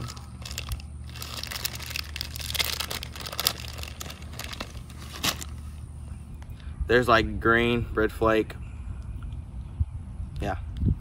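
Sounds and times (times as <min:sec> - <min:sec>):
plastic bag crinkling: 0:00.0 - 0:05.7.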